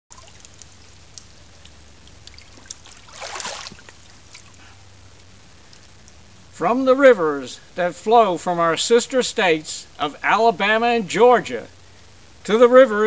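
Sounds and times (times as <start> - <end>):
water splashing: 0.0 - 5.8
water dripping: 0.0 - 6.4.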